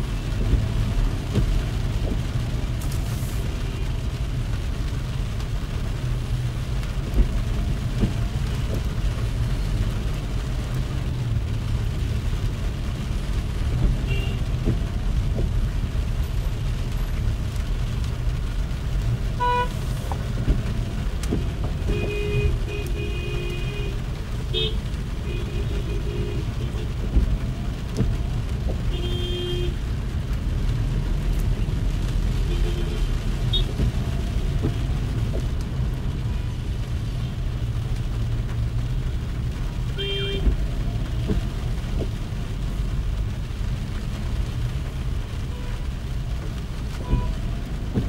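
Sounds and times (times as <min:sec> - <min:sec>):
car driving on wet road: 0:00.0 - 0:48.0
car horn honks: 0:28.9 - 0:29.7.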